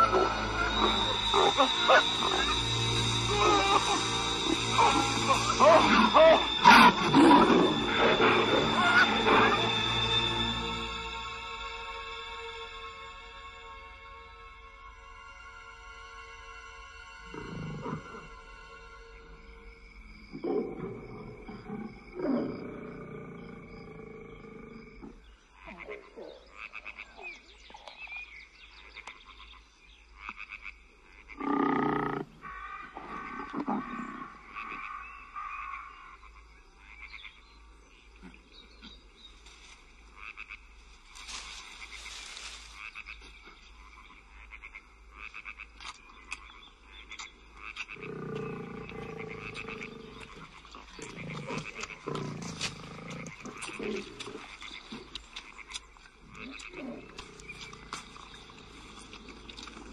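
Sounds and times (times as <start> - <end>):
frogs croaking: 0.0 - 59.9
big cat growling and roaring: 3.3 - 9.9, 17.3 - 18.3, 20.3 - 25.9, 31.4 - 34.7, 47.9 - 55.2, 56.3 - 59.9.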